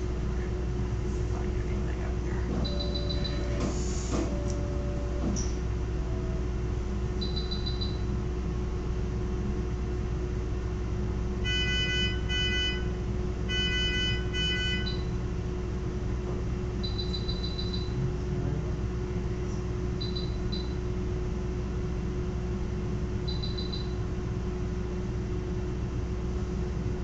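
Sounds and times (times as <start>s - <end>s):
equipment hum: 0.0s - 27.0s
monitor beeping: 2.1s - 5.6s, 7.2s - 8.1s, 13.5s - 15.2s, 16.8s - 18.0s, 20.0s - 20.8s, 23.3s - 24.0s
multi-tone alarm beeps: 2.5s - 3.6s, 7.2s - 8.1s, 11.4s - 12.9s, 13.5s - 15.1s, 16.8s - 18.0s, 20.0s - 20.8s, 23.3s - 24.0s.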